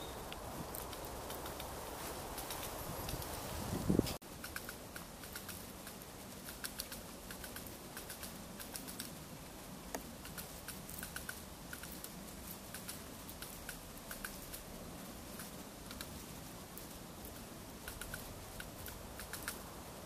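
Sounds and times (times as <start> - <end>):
woodpecker tapping on stem: 4.4 - 9.1.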